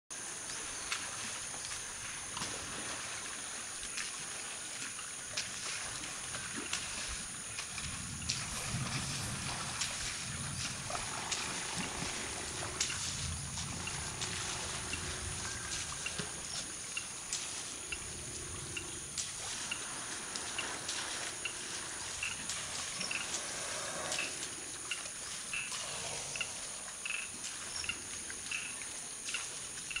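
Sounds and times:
high insect drone: 0:00.2 - 0:30.0
water trickling and splashing: 0:00.2 - 0:30.0
low rumbling: 0:07.8 - 0:16.5.

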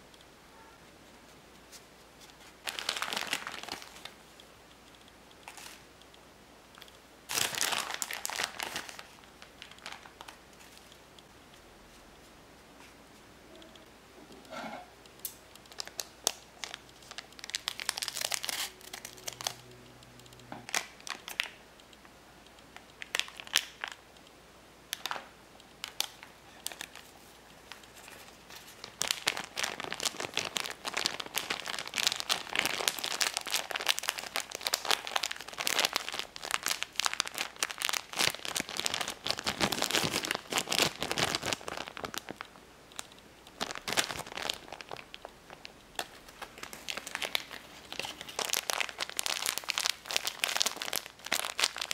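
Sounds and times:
plastic bag crinkling: 0:02.4 - 0:04.2, 0:07.3 - 0:10.9, 0:15.7 - 0:19.6, 0:20.7 - 0:21.6, 0:25.8 - 0:51.9.

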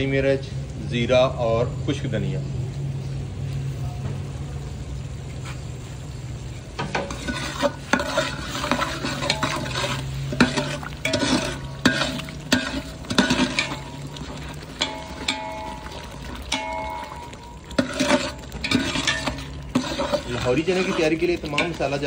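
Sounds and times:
spices sizzling in a pot: 0:01.9 - 0:22.0
ladle scraping metal pot: 0:06.6 - 0:22.0.

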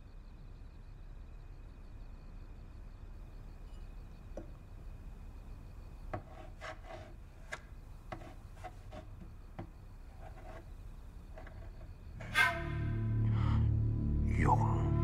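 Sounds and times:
hand rubbing on wooden tabletop: 0:06.2 - 0:07.2, 0:08.1 - 0:09.1.

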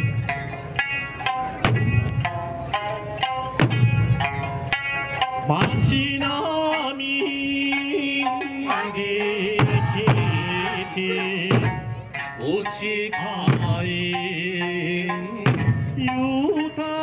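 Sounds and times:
melody with pitched instruments: 0:00.0 - 0:17.0
sharp drum hits: 0:01.6 - 0:04.4, 0:05.4 - 0:06.2, 0:09.6 - 0:10.5, 0:11.4 - 0:12.0, 0:13.3 - 0:14.3, 0:15.3 - 0:16.3.

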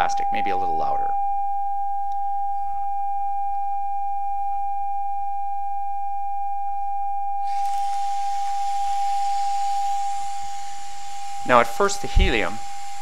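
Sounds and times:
steady high tone from loudspeaker: 0:00.0 - 0:01.2
gas hissing through tubing: 0:07.5 - 0:13.0.

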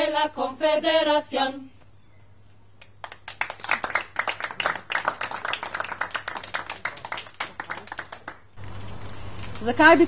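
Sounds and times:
crowd applauding: 0:03.0 - 0:08.5.

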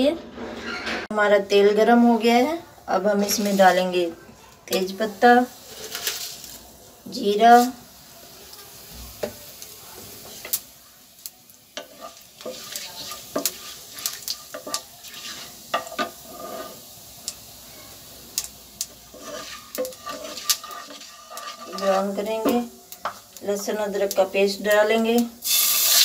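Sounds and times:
seeds sizzling in hot oil: 0:01.3 - 0:26.0
wooden spatula stirring: 0:11.7 - 0:17.0, 0:18.8 - 0:24.2.

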